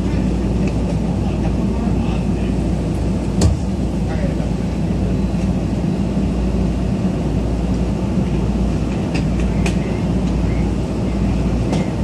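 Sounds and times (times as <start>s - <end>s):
train car low hum: 0.0s - 12.0s.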